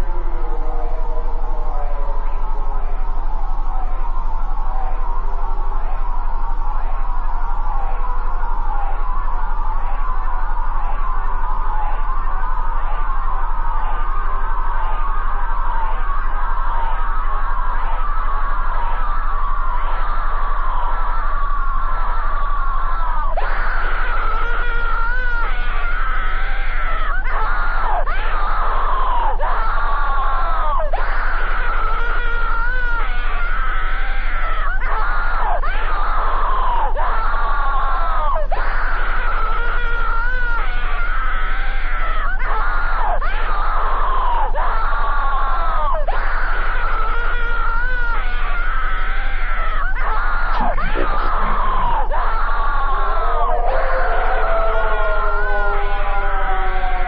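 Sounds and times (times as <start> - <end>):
distorted screaming cries: 0.0 - 57.0
steady low hum: 50.5 - 57.0.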